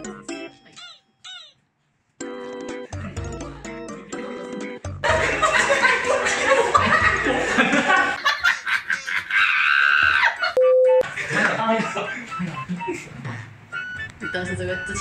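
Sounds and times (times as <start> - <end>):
light keyboard music: 0.0 - 1.2, 2.2 - 7.8, 11.9 - 15.0
cartoon monkeys laughing: 0.8 - 1.6, 5.0 - 11.0.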